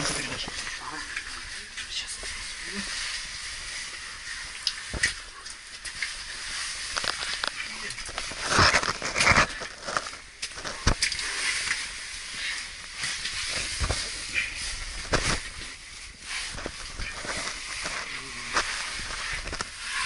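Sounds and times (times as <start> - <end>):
clothing scraping against rock: 6.3 - 20.0.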